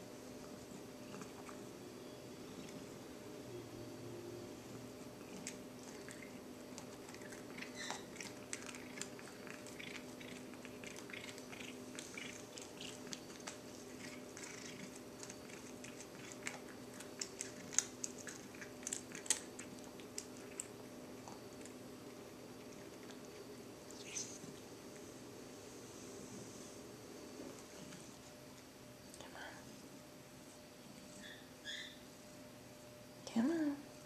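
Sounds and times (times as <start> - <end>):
cat chewing food: 0.4 - 1.7, 5.0 - 23.9.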